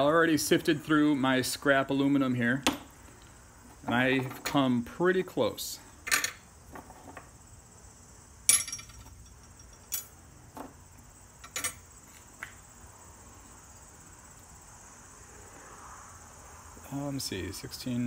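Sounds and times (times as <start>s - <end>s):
insects chirring: 0.0s - 18.0s
metal pieces knocking on board: 8.5s - 10.7s.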